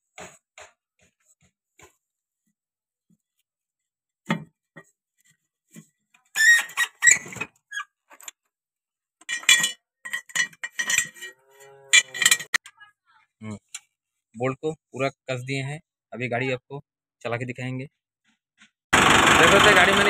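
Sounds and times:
steel bolts clinking on metal: 9.2 - 12.6.

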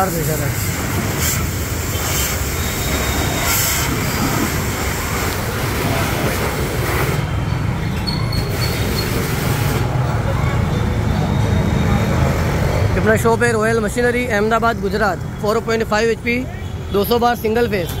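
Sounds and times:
spray jet hissing: 0.0 - 7.2
pressure washer motor humming: 0.1 - 7.2.

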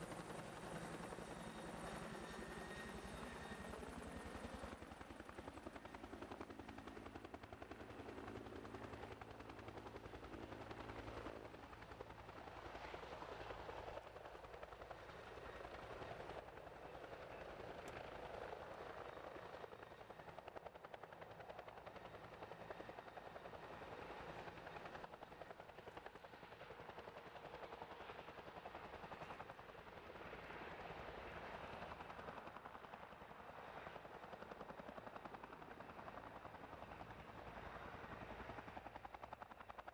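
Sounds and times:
helicopter rotor beating: 0.0 - 12.8.

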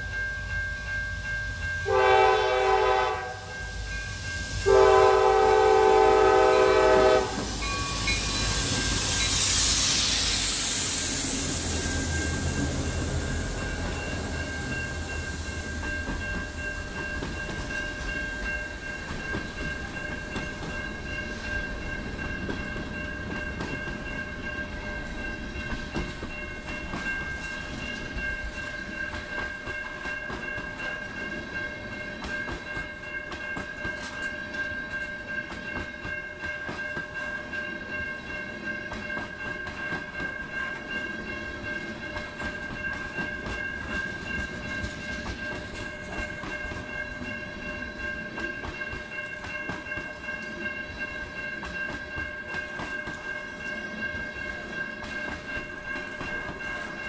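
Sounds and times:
diesel locomotives passing: 0.0 - 57.0
train air horn: 1.8 - 3.7, 4.6 - 7.5.

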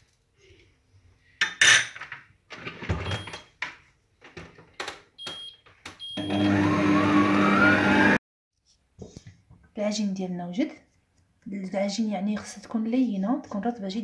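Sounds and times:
mixer motor hum and whine: 6.2 - 8.2.

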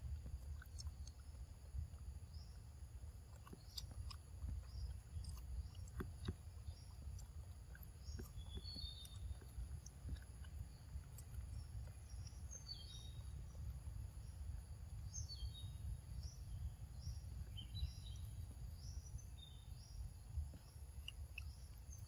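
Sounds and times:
monkey chewing fruit clicks: 0.0 - 19.5, 20.1 - 22.0
faint bird chirps: 0.0 - 22.0
insect hum: 0.0 - 22.0
wind rumble on microphone: 0.0 - 22.0.

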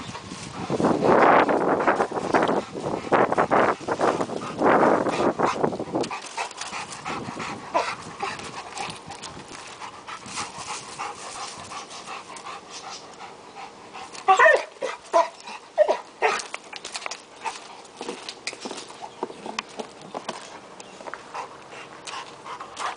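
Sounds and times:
crackling in dry leaves: 0.0 - 7.0, 7.6 - 13.2, 14.0 - 22.9
dog panting: 0.3 - 16.4, 21.2 - 22.9
dog whining: 14.2 - 16.5.

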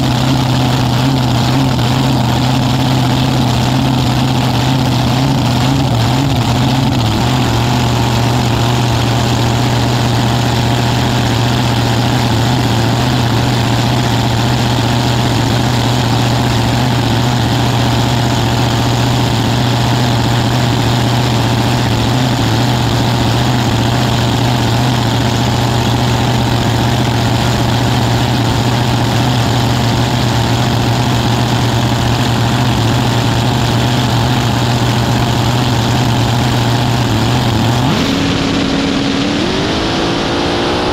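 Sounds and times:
drag racing engine idling loudly: 0.0 - 40.9.

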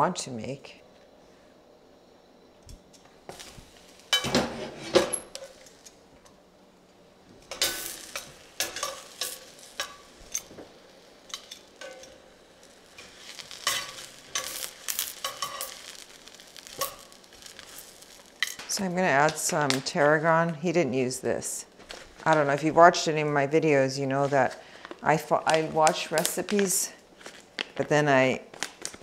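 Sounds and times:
mushrooms sizzling in a skillet: 3.3 - 6.0, 7.2 - 29.0
tongs clinking against pan: 11.3 - 12.2, 13.3 - 16.0.

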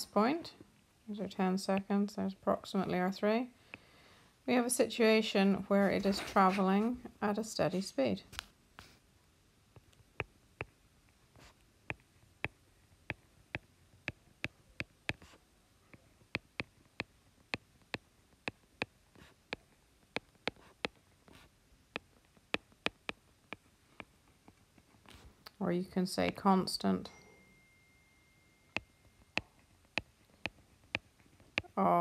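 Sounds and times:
stylus tapping on tablet: 9.8 - 10.8, 11.4 - 24.6, 26.2 - 26.8, 28.7 - 31.8.

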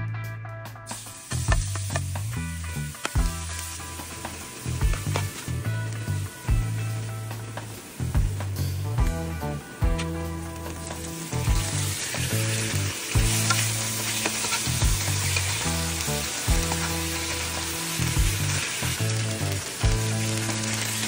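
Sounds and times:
meat sizzling in hot oil: 0.9 - 21.0
spatula stirring and scraping: 10.9 - 15.8.

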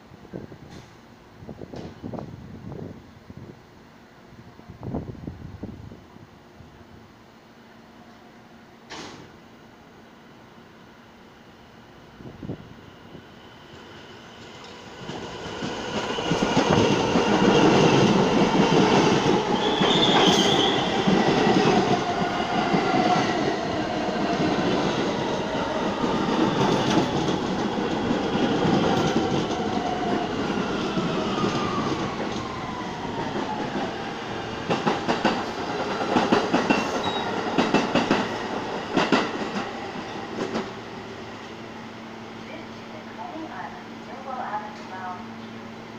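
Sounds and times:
train wheels clattering on rails: 14.4 - 32.5, 33.1 - 40.8
wheel squeal: 19.6 - 20.9.

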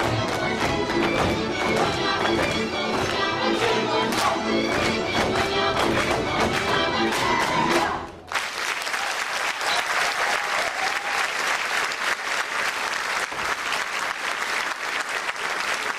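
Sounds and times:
folk dance music: 0.0 - 8.3
audience applause: 8.3 - 15.9.

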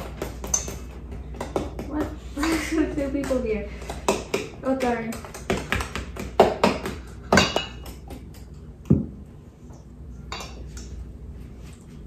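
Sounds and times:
utensils clinking on metal bowls: 0.4 - 1.0, 7.3 - 8.6, 10.3 - 11.0.

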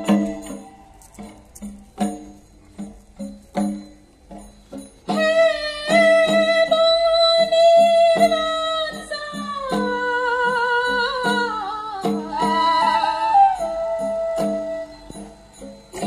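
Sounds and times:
barrel drum beating: 0.0 - 10.2
person singing folk song: 5.1 - 15.2.

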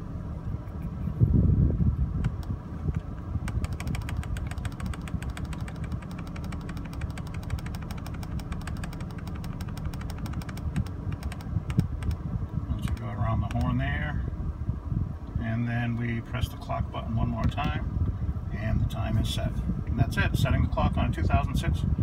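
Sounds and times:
low steady rumble: 0.0 - 22.0
fast even ticking: 2.2 - 13.8.

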